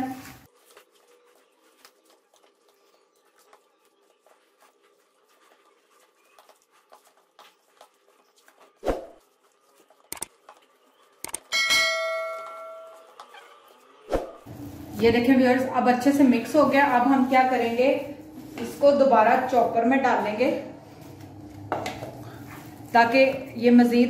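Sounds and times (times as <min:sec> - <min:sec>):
hands kneading minced meat: 0:00.0 - 0:11.2, 0:12.9 - 0:24.0
steel bowl ringing: 0:11.5 - 0:13.1.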